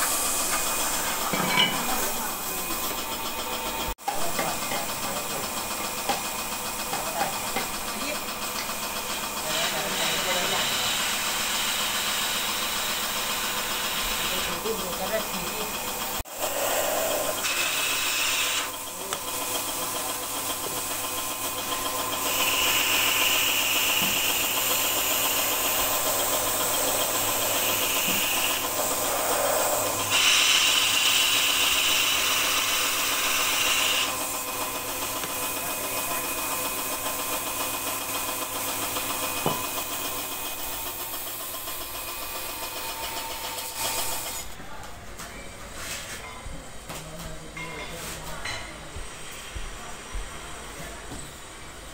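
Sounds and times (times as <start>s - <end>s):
paint spray gun hissing: 0.0s - 1.3s, 19.4s - 42.6s
air compressor motor hum: 0.0s - 44.8s.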